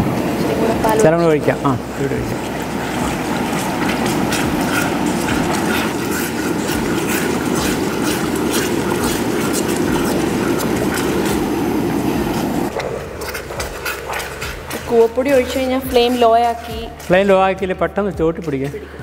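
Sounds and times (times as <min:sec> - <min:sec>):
liquid being poured: 0:00.0 - 0:16.2
wooden spatula scraping a pot: 0:02.3 - 0:17.2.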